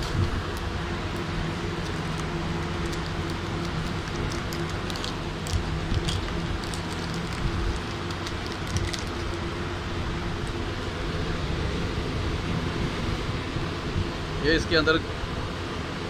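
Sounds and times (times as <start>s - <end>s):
steady low hum: 0.0s - 16.0s
plastic wrapping crinkling: 1.5s - 9.6s.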